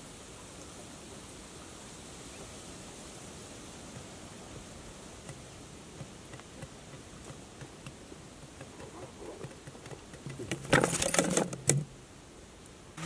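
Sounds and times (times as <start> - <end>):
faint scattered ticks: 3.5 - 12.0.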